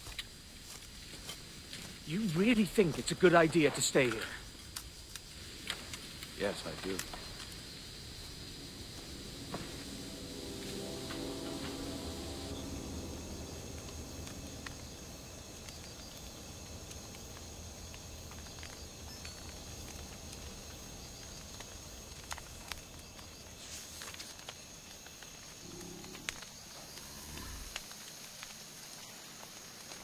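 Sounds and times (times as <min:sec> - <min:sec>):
low hiss: 0:00.0 - 0:24.8
faint clicks and ticks: 0:03.8 - 0:07.6
high-pitched insect drone: 0:06.6 - 0:20.1.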